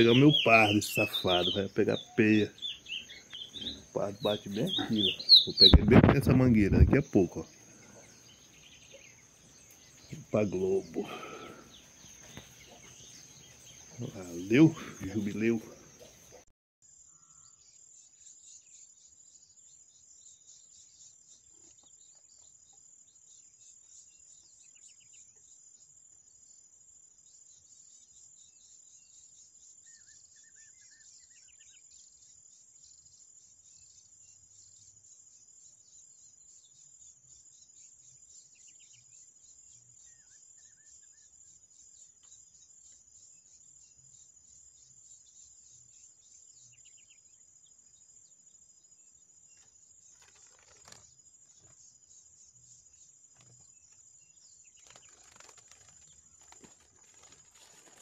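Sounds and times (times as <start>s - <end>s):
soft bird chirps: 0.0s - 25.7s, 27.4s - 58.0s.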